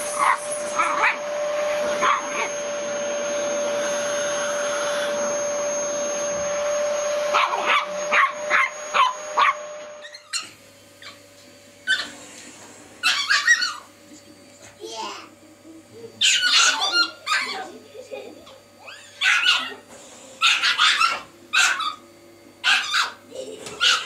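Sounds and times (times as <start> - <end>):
vacuum cleaner whine: 0.0 - 24.0
dog barking: 2.0 - 2.5, 7.3 - 9.6, 16.2 - 17.6, 19.2 - 19.8, 20.4 - 22.0, 22.6 - 23.2, 23.8 - 24.0.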